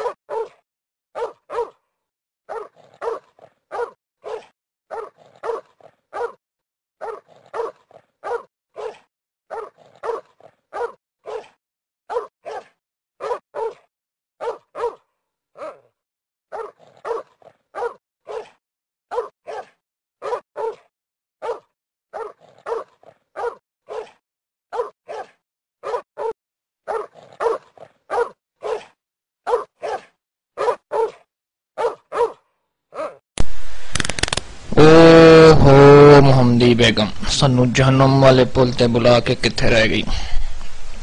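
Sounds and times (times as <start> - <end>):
dog barking: 0.0 - 0.6, 1.2 - 1.8, 2.5 - 6.4, 7.0 - 33.2.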